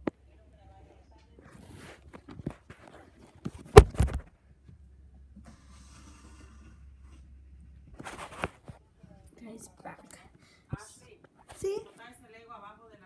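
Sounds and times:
knocks on tablet microphone: 3.8 - 4.3
faint rubbing: 5.5 - 8.8.

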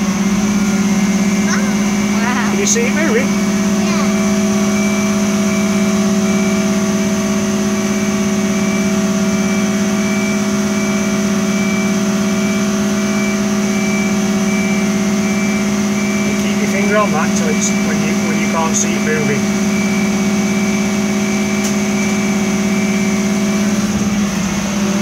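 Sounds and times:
truck engine and hydraulic pump: 0.0 - 25.0.

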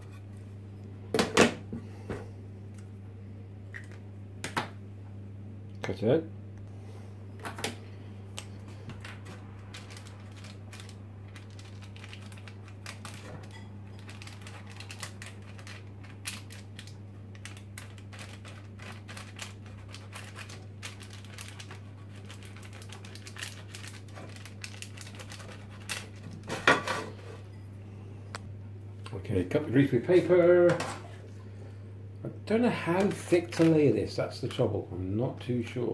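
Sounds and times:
steady low hum: 0.0 - 35.9
paper rustling and crinkling: 8.7 - 27.3, 32.9 - 33.9.

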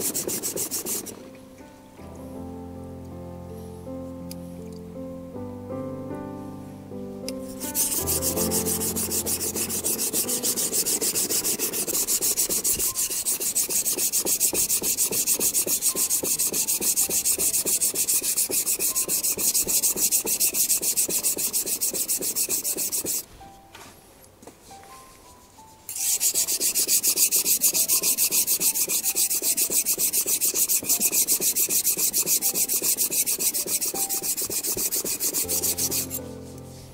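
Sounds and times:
knife scraping on whetstone: 0.0 - 1.2, 7.4 - 23.2, 25.9 - 36.2.

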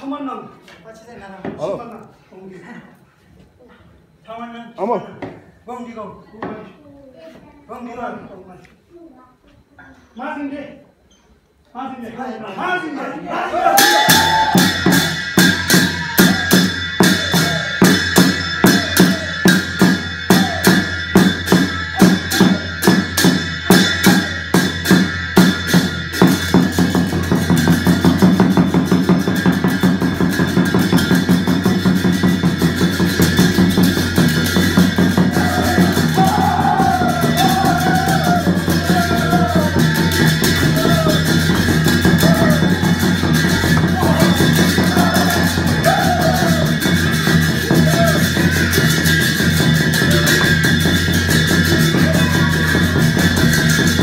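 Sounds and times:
folk dance drumming: 13.6 - 54.0
wavering melody: 14.1 - 54.0.

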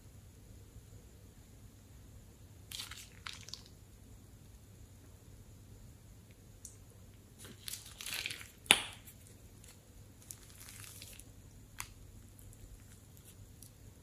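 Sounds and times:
slime squishing and crackling: 7.4 - 13.8.

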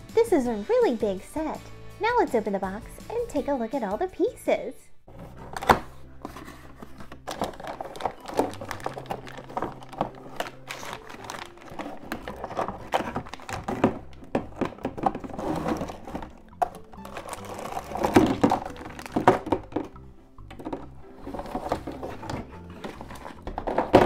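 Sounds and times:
background music: 0.0 - 24.0
plastic bags crinkling: 5.4 - 24.0
plastic toy pieces knocking: 7.0 - 24.0.

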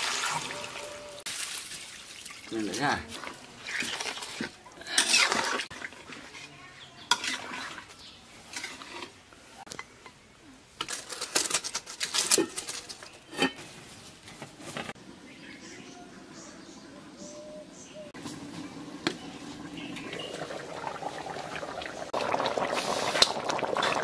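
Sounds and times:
metal spatula scraping a pot: 3.2 - 9.2, 10.8 - 13.8.

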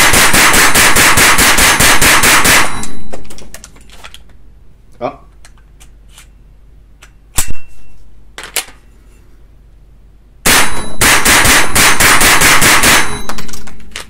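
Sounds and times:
rapid rifle shots: 0.0 - 2.9, 10.4 - 13.7.

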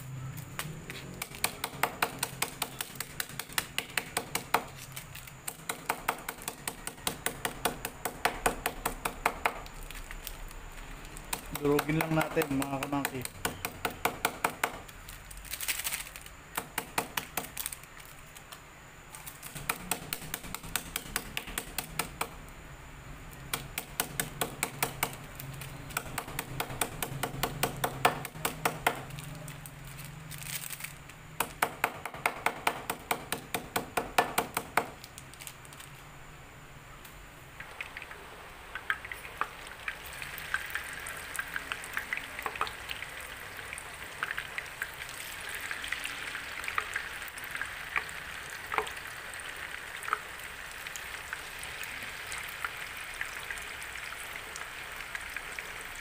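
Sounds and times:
knife tapping peanut packets: 11.3 - 15.0
oil sizzling in a pan: 37.6 - 56.0.

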